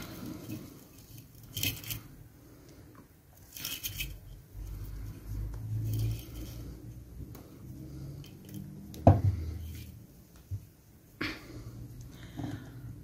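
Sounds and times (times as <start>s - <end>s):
beads clicking and rattling: 3.4s - 4.4s.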